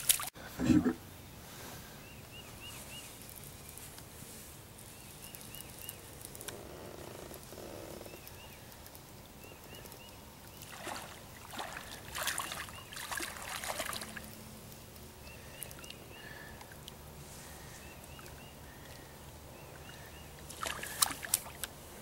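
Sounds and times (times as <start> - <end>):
faint birds chirping: 1.5 - 22.0
fish splashing at water surface: 20.5 - 21.7.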